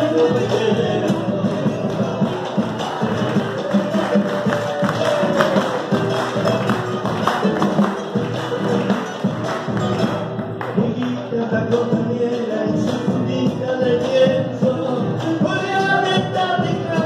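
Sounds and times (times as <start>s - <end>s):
acoustic guitars strummed: 0.0s - 17.0s
hand drums: 0.0s - 17.0s.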